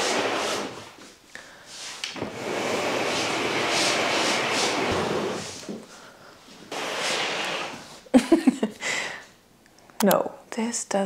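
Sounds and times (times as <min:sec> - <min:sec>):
furniture scraping on wooden floor: 0:00.0 - 0:01.1, 0:02.1 - 0:06.0, 0:06.6 - 0:08.0.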